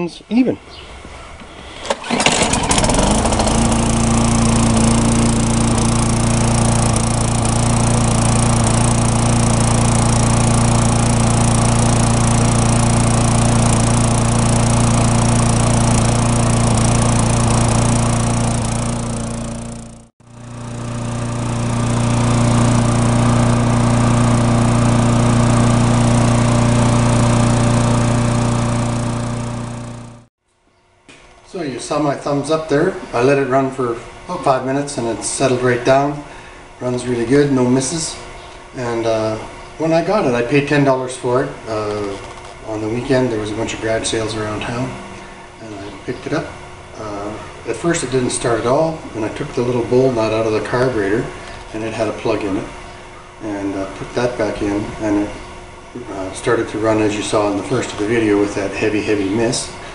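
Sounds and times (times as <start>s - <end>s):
lawn mower engine running: 1.4s - 30.3s, 32.1s - 59.9s.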